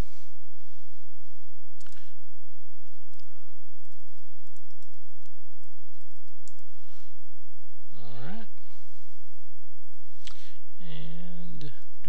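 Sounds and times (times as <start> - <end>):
steady low hum: 0.0 - 12.0
keyboard keys clicking: 3.1 - 6.6.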